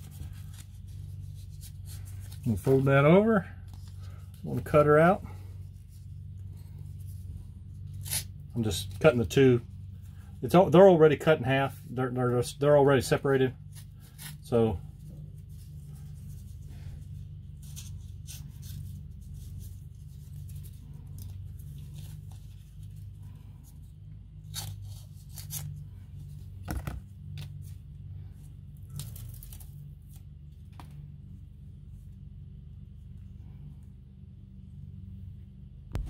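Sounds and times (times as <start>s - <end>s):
steady low hum: 0.0s - 36.0s
adhesive tape ripping: 7.9s - 8.3s.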